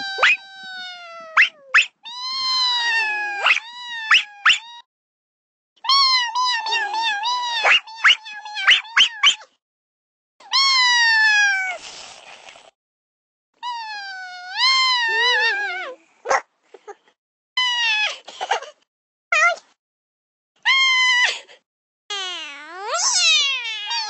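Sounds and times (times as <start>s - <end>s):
brief hiss: 11.8s - 12.7s
high wavering meows: 13.6s - 16.0s, 22.1s - 24.0s.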